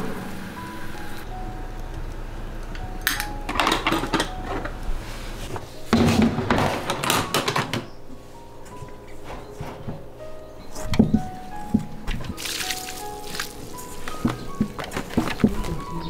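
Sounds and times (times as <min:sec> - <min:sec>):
metal knocks and scrapes: 0:05.4 - 0:07.9, 0:08.7 - 0:10.2.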